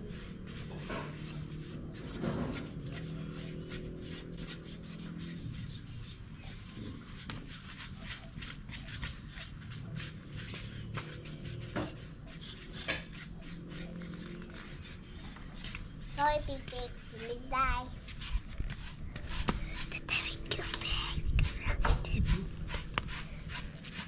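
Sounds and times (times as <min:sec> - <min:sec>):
knife scraping hair off carcass: 0:21.4 - 0:24.0.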